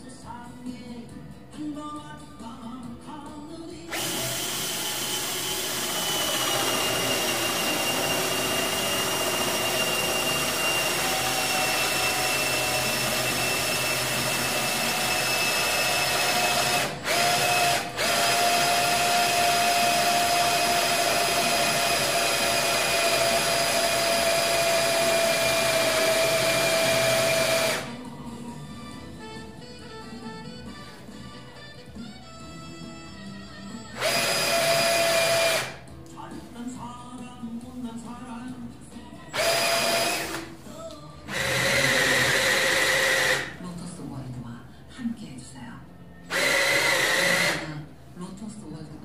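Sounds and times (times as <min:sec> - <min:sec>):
power drill boring into wood: 0:03.9 - 0:28.0, 0:33.9 - 0:35.8, 0:39.4 - 0:40.5, 0:41.3 - 0:43.6, 0:46.3 - 0:47.8.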